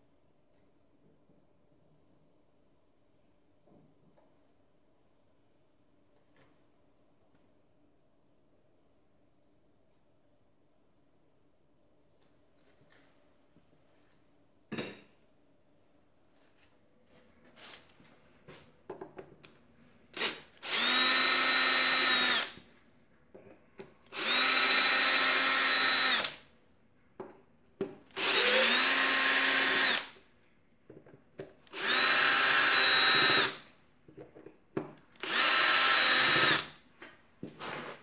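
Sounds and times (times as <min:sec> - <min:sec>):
power drill motor whine: 0:20.2 - 0:22.6, 0:24.1 - 0:26.4, 0:28.1 - 0:30.2, 0:31.7 - 0:33.6, 0:35.2 - 0:36.7.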